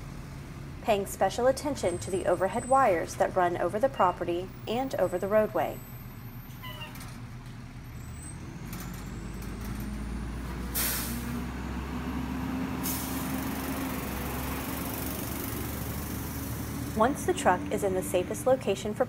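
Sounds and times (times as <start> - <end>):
diesel truck engine running: 0.0 - 19.0
air brakes hissing: 10.7 - 11.4, 12.7 - 14.1.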